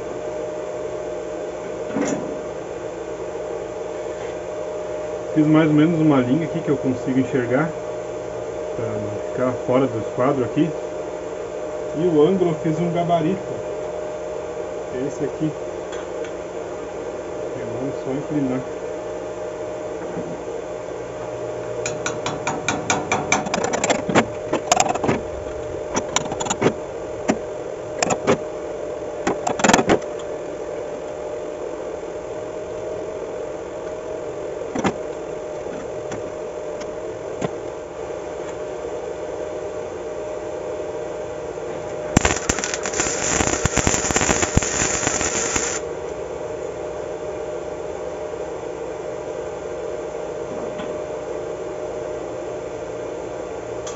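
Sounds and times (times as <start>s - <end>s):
steady hum: 0.0s - 49.0s
welder crackling tacks: 42.2s - 45.8s
welder sizzling: 42.2s - 45.9s.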